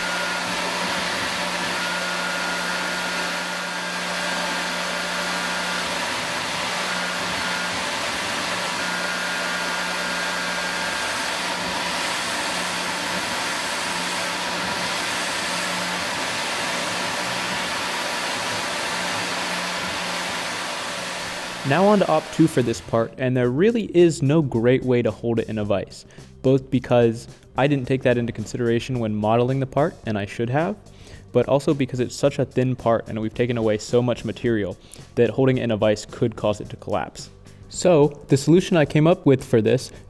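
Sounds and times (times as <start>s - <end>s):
milling machine running: 0.0s - 23.0s
coolant nozzle hiss: 10.2s - 23.0s.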